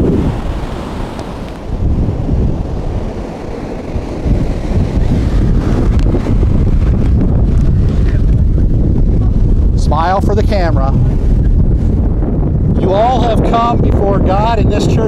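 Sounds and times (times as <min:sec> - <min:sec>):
ocean surf breaking: 0:00.0 - 0:14.3
wind buffeting microphone: 0:00.0 - 0:15.0.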